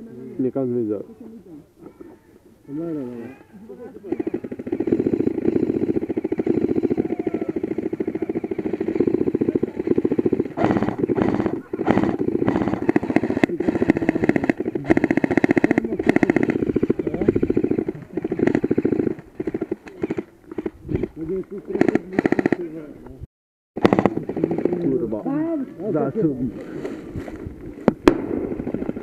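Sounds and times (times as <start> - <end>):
airsoft rifle full-auto bursts: 4.0 - 21.1, 21.7 - 22.8, 23.8 - 24.8.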